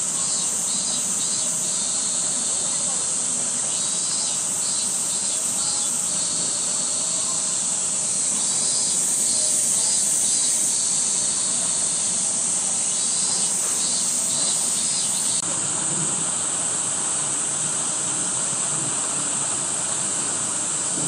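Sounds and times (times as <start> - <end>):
pulsing insect chirp: 0.0 - 15.4
high-pitched insect chorus: 0.0 - 21.0.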